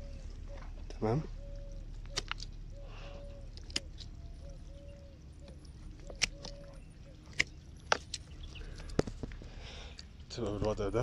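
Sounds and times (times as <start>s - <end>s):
pruning shears snipping: 6.0s - 6.6s, 7.3s - 8.2s.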